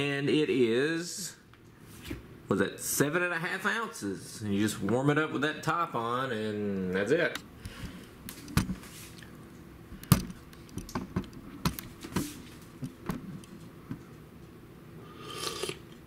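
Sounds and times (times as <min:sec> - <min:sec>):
slurp: 0:15.1 - 0:16.0.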